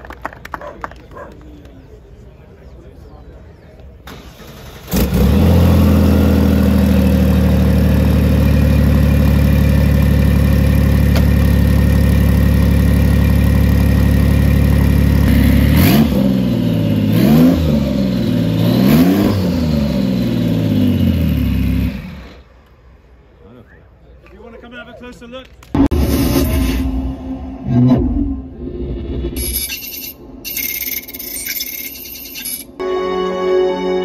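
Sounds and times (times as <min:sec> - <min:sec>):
car engine starting and idling: 0:04.0 - 0:22.6
car engine revving: 0:04.1 - 0:22.4.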